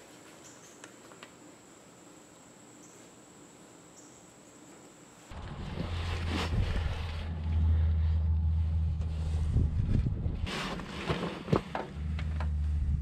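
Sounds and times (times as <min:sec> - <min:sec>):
rustle: 0:00.0 - 0:12.9
steady low hum: 0:00.0 - 0:13.0.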